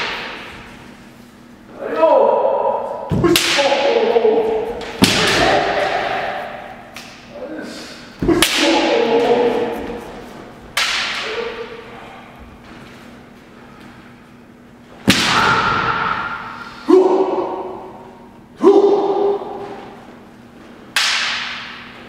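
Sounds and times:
bamboo swords striking armour: 0:03.1 - 0:04.0, 0:04.8 - 0:06.4.

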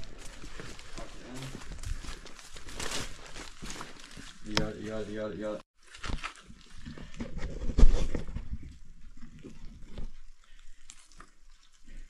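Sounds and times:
people scuffling and grunting: 0:00.0 - 0:05.6.

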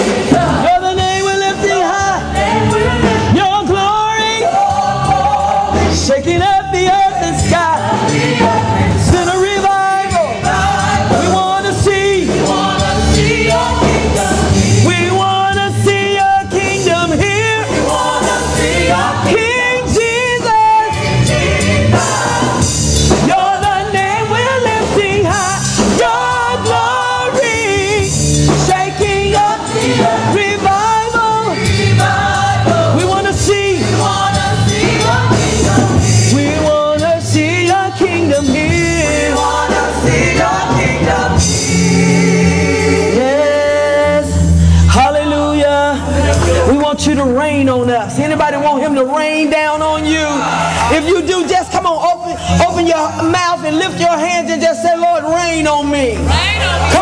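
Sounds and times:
women singing together: 0:00.0 - 0:01.0, 0:02.2 - 0:03.4, 0:04.2 - 0:06.0, 0:07.4 - 0:09.2, 0:10.2 - 0:15.0, 0:17.4 - 0:20.0, 0:20.8 - 0:24.2, 0:25.6 - 0:28.0, 0:28.7 - 0:44.2
musical backing: 0:00.0 - 0:57.0.

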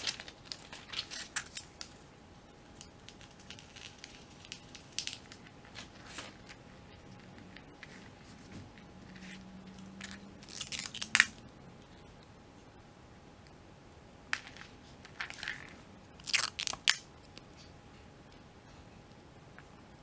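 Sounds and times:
paper rustling and crinkling: 0:00.0 - 0:02.0, 0:03.3 - 0:09.4.

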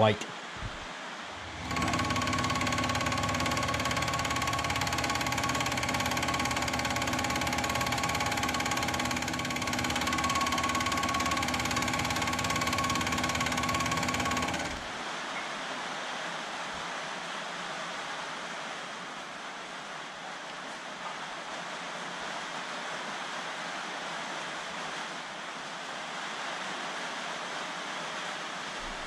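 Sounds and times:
milling machine cutting metal: 0:01.4 - 0:14.9.

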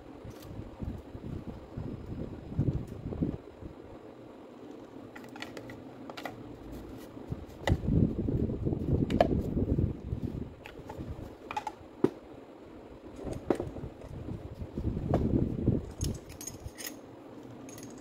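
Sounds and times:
rubbing and knocking of tool parts: 0:10.6 - 0:12.2.

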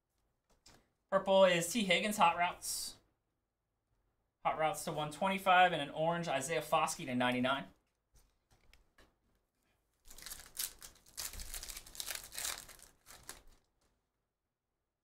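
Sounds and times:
foil wrapper tearing and crinkling: 0:10.1 - 0:13.7.

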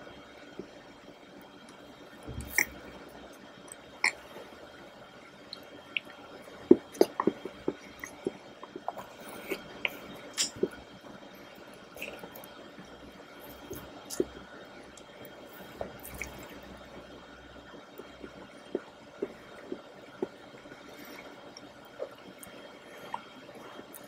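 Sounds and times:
wet smacking and chewing: 0:02.3 - 0:02.8, 0:05.5 - 0:10.8, 0:13.7 - 0:14.4, 0:15.8 - 0:16.6.

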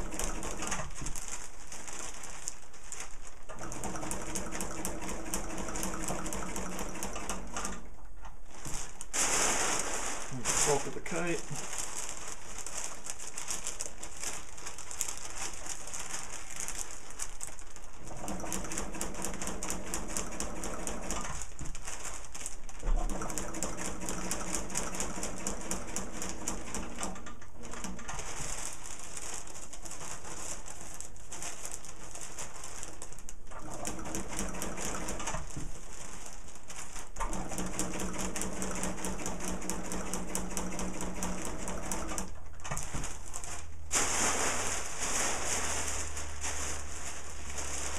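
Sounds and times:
sewing machine stitching: 0:00.0 - 0:01.2, 0:03.5 - 0:08.0, 0:18.0 - 0:21.6, 0:22.8 - 0:28.5, 0:33.4 - 0:35.7, 0:37.2 - 0:43.5.

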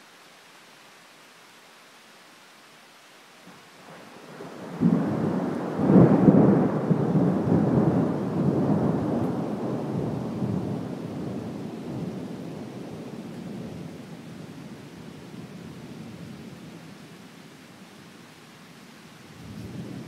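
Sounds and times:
thunder rumbling: 0:04.3 - 0:13.2.

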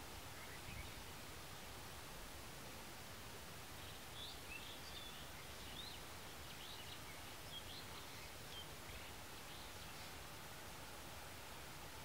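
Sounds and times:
small birds chirping: 0:00.0 - 0:01.7, 0:03.7 - 0:10.5
steady outdoor hiss: 0:00.0 - 0:12.0.

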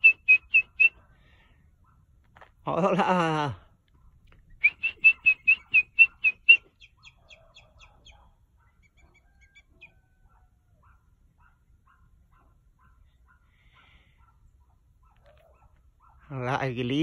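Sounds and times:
eagle whistled calls: 0:00.0 - 0:01.0, 0:04.5 - 0:10.0.

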